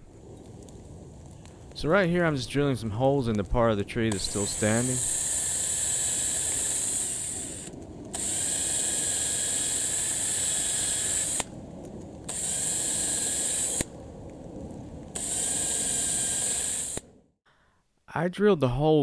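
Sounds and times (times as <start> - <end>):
cordless drill whining: 4.2 - 11.5, 12.3 - 13.9, 15.2 - 17.0.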